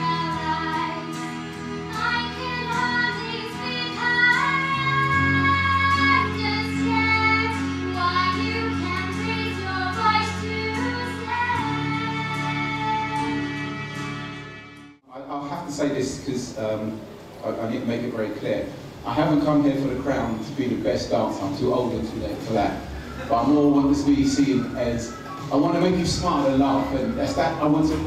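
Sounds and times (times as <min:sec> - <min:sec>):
girl singing into a microphone: 0:00.0 - 0:13.9.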